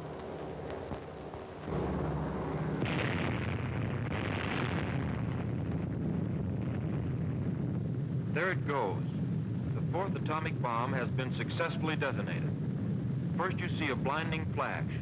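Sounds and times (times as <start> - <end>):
heavy rumble: 0.0 - 15.0
explosion blast: 1.6 - 8.5.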